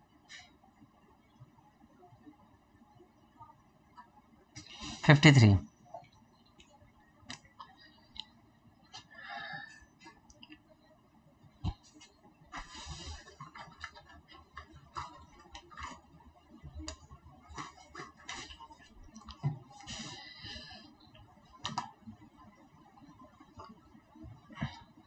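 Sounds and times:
keyboard and mouse clicks: 21.6 - 22.0.

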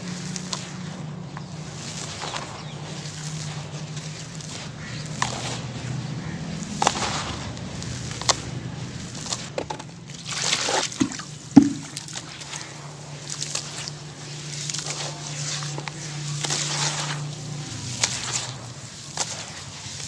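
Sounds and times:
water splashing and sloshing: 0.0 - 20.0
crumbled cement crunching into water: 0.1 - 20.0
sharp knock: 11.6 - 11.9.

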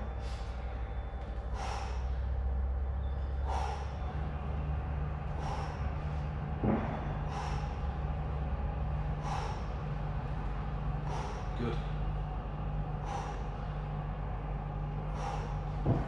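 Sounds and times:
man breathing out sharply: 0.0 - 0.6, 1.4 - 2.4, 3.3 - 4.1, 5.3 - 6.0, 6.9 - 8.0, 9.1 - 9.8, 11.0 - 11.6, 13.0 - 13.7, 15.0 - 15.8
low hum: 0.0 - 16.0.

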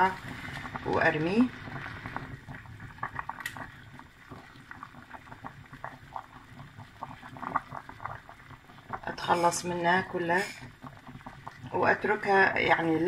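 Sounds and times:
pot boiling and bubbling: 0.0 - 13.0.

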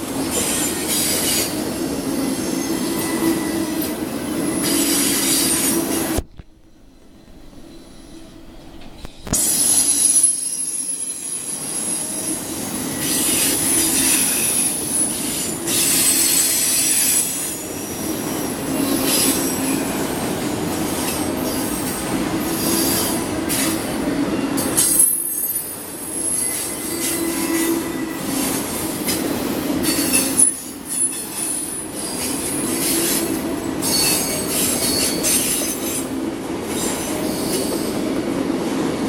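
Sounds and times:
freight train rolling past: 0.0 - 39.0
high-pitched wheel squeal: 2.3 - 6.1, 29.8 - 35.9.

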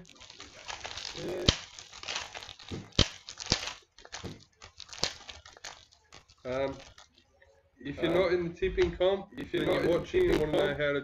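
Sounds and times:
cards being handled: 0.0 - 7.3, 9.4 - 10.8
plastic wrapper crinkling: 0.0 - 8.4, 9.4 - 11.0.

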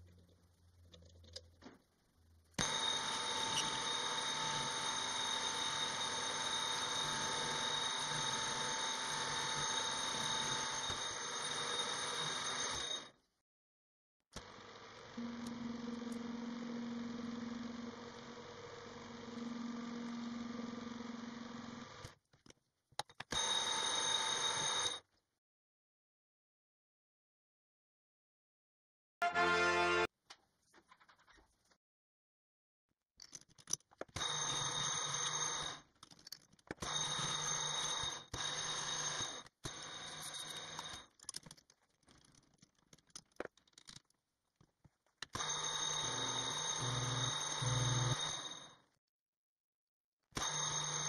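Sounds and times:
low hum: 15.2 - 18.1.

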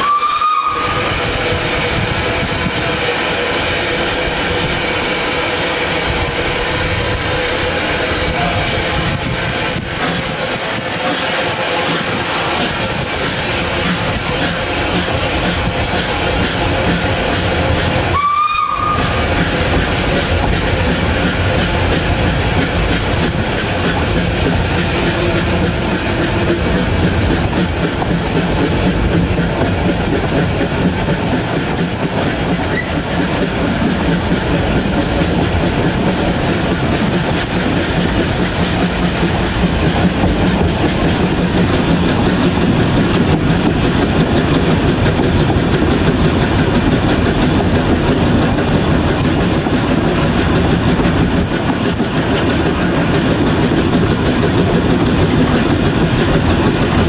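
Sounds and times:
train wheels clattering over rails: 0.0 - 57.0.

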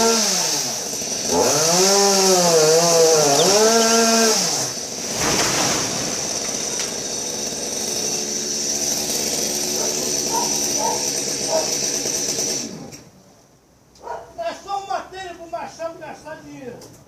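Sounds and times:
chainsaw engine idling: 0.4 - 5.0, 6.0 - 12.8.

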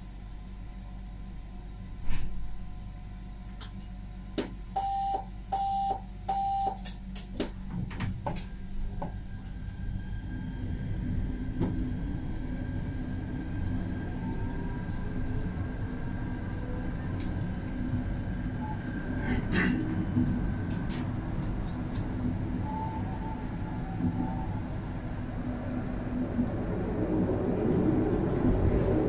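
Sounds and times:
short electronic beeps: 4.8 - 6.8
tram pulling away: 8.8 - 29.0.

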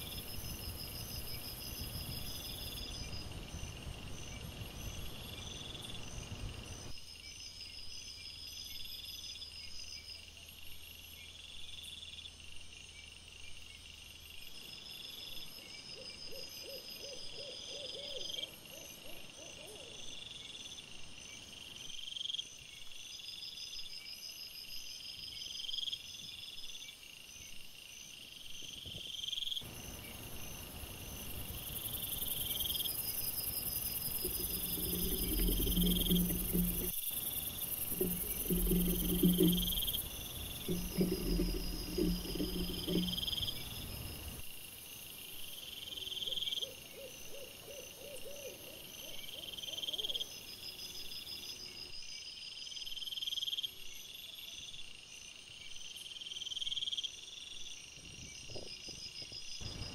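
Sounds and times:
rising insect trill: 0.0 - 9.6, 29.5 - 44.5
insects chirping: 0.0 - 59.9
lower rapid insect pulses: 0.0 - 59.9.

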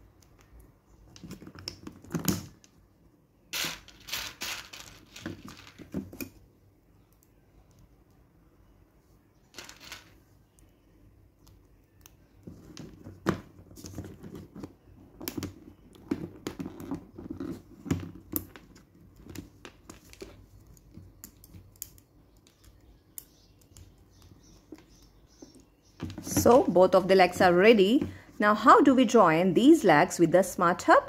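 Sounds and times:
plastic parts clicking and rattling: 3.6 - 6.4.

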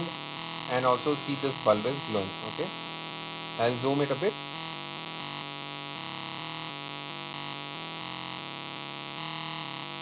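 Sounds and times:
buzzer humming: 0.0 - 10.0.

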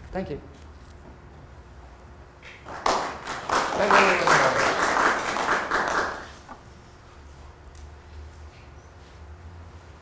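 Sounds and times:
steady low hum: 0.0 - 10.0
applause: 2.4 - 6.5.

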